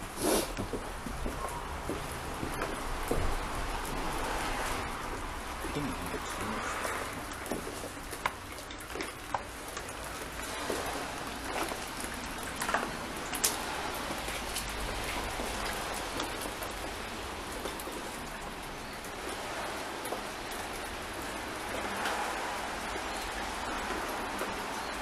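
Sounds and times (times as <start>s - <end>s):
steady hiss: 0.0s - 1.2s.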